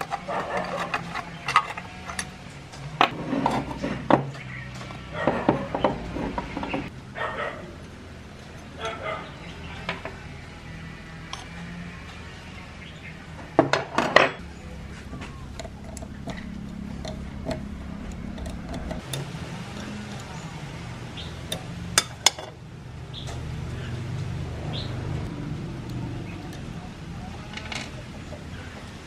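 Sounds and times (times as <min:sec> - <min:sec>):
metal fan parts clanking: 0:00.0 - 0:06.9, 0:13.5 - 0:24.5, 0:25.6 - 0:29.0.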